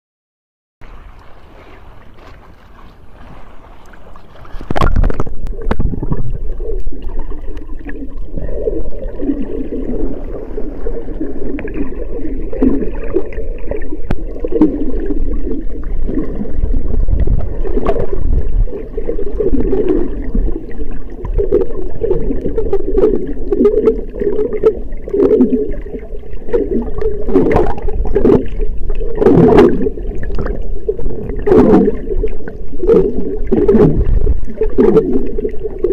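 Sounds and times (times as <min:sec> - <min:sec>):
small waves: 0:00.8 - 0:35.9
underwater sloshing and gurgling: 0:00.8 - 0:35.9
underwater clicks and knocks: 0:03.8 - 0:06.4, 0:26.9 - 0:32.0.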